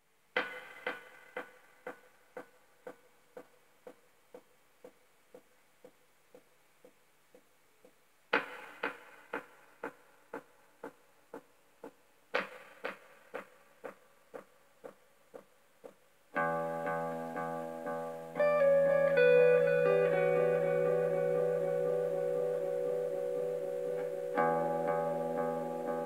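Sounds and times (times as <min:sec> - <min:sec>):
electric guitar notes with delay echoes: 0:16.4 - 0:26.0.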